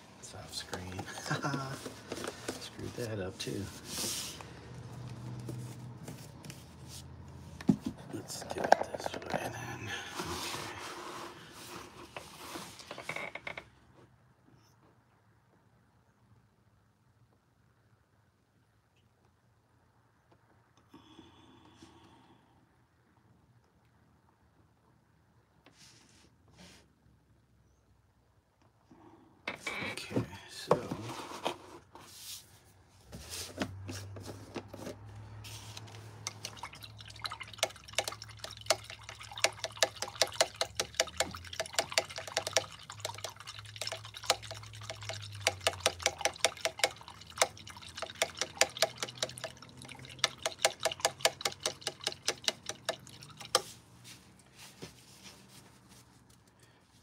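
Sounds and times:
liquid sloshing: 35.8 - 54.0
paintbrush ticking in jar: 36.3 - 53.7.

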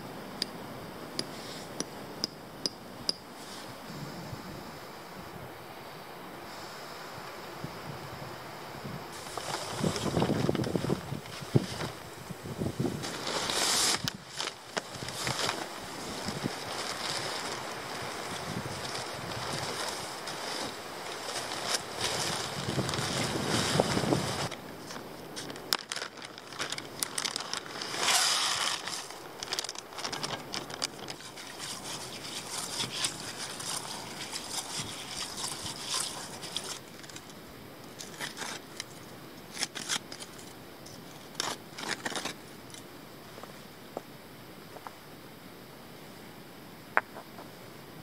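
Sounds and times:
wind on microphone: 3.0 - 5.7, 6.4 - 25.4
nylon rustling: 9.2 - 12.1, 12.7 - 24.6, 25.3 - 37.3
plastic packet crinkling: 25.4 - 37.3
trowel scraping into soil: 27.8 - 29.2, 31.1 - 37.3.

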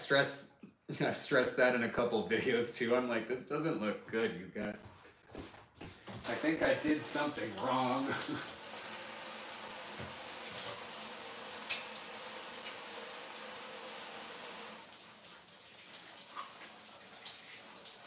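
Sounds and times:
faucet running: 6.2 - 18.0.

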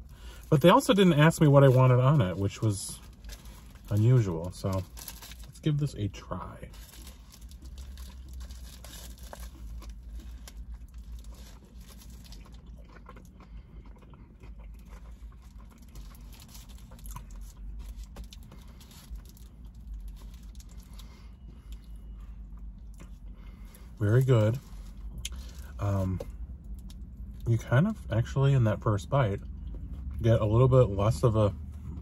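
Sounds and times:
steady low hum: 0.0 - 32.0
person chewing food: 7.0 - 23.9.

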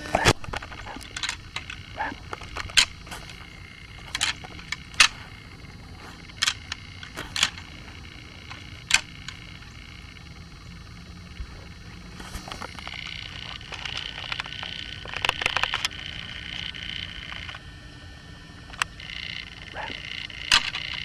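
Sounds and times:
antlers clacking together: 0.2 - 9.6.

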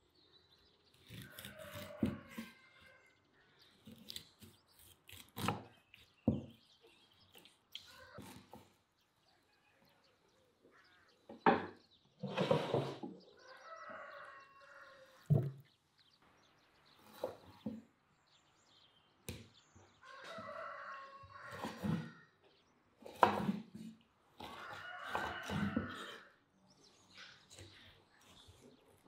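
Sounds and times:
knife cutting meat on wooden board: 1.0 - 2.6, 3.8 - 6.6, 23.0 - 26.2
rooster crowing: 1.2 - 3.2, 13.4 - 15.2, 20.0 - 22.2, 24.5 - 26.3.

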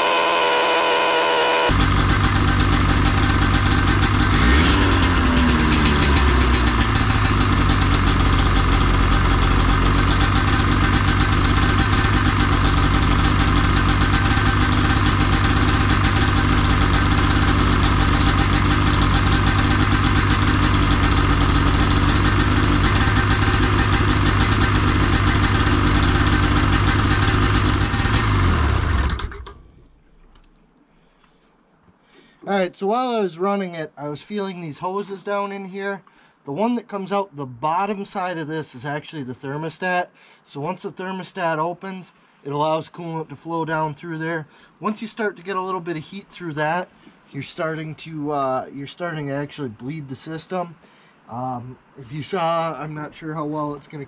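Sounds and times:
snowmobile engine running: 0.0 - 29.4.

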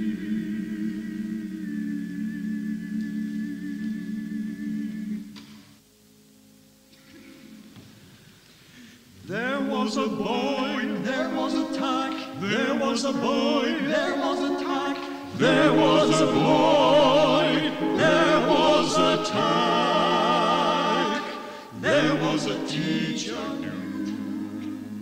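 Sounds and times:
choir singing in harmony: 0.0 - 5.8, 9.3 - 25.0.

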